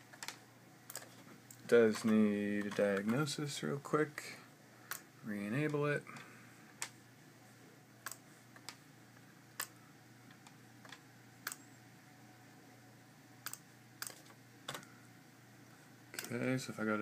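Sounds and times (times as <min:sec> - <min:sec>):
faint steady hum: 0:00.0 - 0:17.0
computer mouse clicks: 0:08.0 - 0:08.8, 0:09.6 - 0:11.6, 0:13.4 - 0:14.8.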